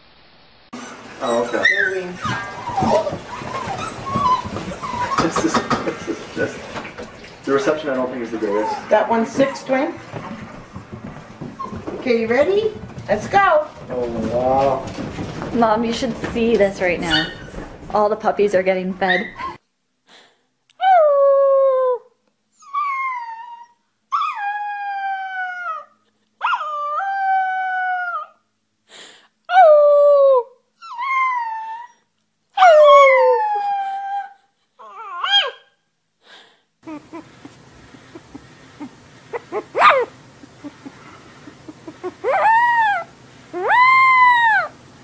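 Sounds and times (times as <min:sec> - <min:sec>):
puppy howling long arching calls: 0:22.7 - 0:28.4, 0:32.6 - 0:35.6, 0:41.8 - 0:44.8
puppy howling short calls: 0:42.0 - 0:44.8.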